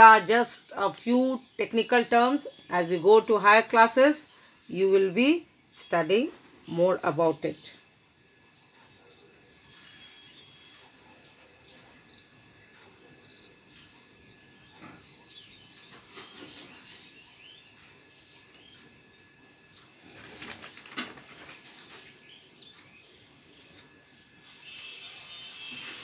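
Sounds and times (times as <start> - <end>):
birds chirping faintly: 0.0 - 26.0
paper rustling: 20.0 - 22.2.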